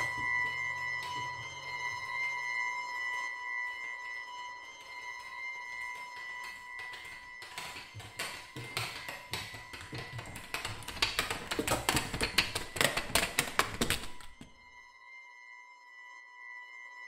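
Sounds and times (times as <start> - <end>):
clatter of taps and knocks: 5.2 - 14.6.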